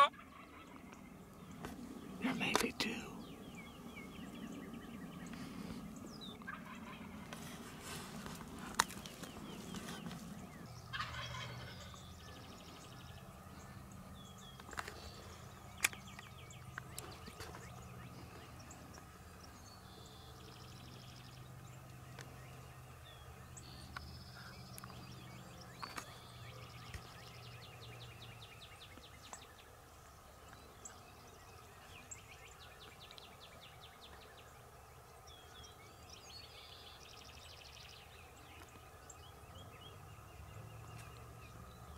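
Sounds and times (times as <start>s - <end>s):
turkeys gobbling: 0.0s - 0.9s, 6.4s - 7.2s, 10.9s - 12.0s.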